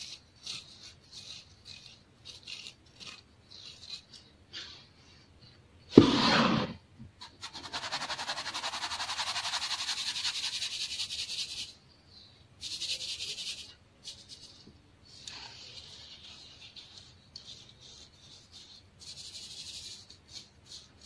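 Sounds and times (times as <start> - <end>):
thump: 6.0 - 6.8.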